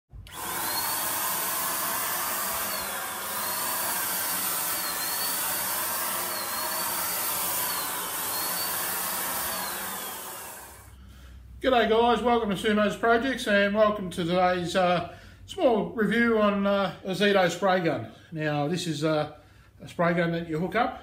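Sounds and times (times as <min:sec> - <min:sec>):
electric paint spray gun whirring: 0:00.1 - 0:11.0.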